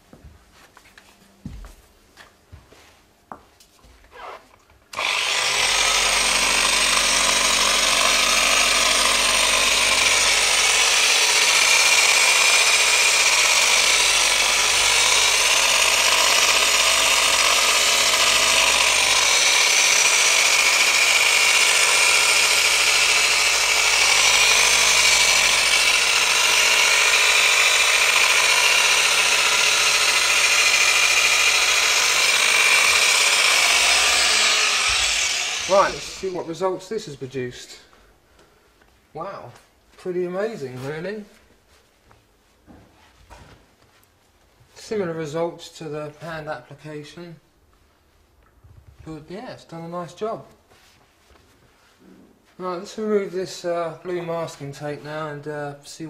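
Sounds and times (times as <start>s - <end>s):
orbital polisher running: 4.9s - 37.1s.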